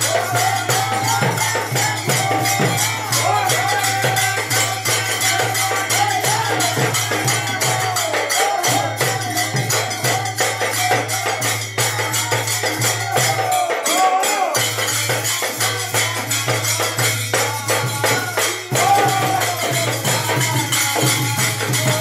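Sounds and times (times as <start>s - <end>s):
barrel drum and hand drum: 0.0s - 22.0s
men singing together: 0.0s - 22.0s.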